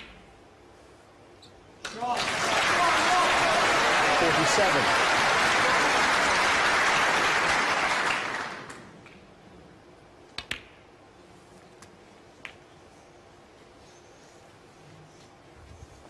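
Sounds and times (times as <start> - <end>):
applause: 1.8 - 9.0
snooker balls clicking: 10.3 - 10.9.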